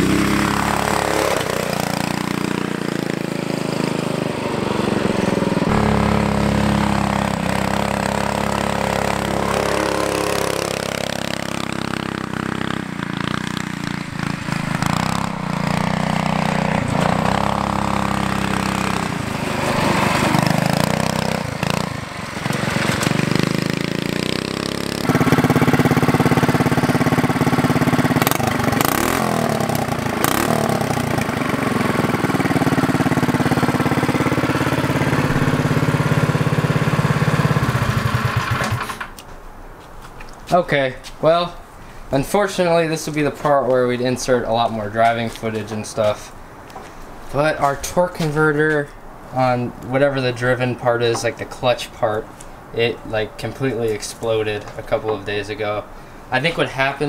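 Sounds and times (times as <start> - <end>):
go kart engine running: 0.0 - 39.2.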